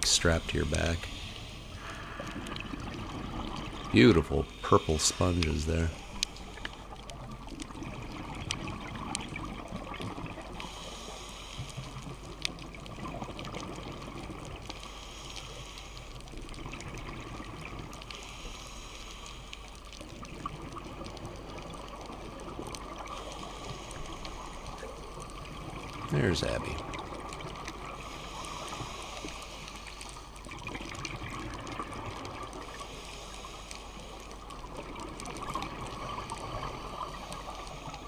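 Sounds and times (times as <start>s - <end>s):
muffled underwater rushing: 0.0s - 12.0s
faint clicks: 1.2s - 3.9s, 5.1s - 38.0s.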